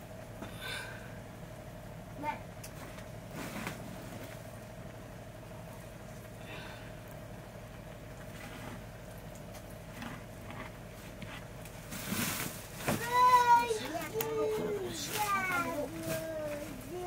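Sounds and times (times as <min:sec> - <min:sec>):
faint hum: 0:00.0 - 0:17.0.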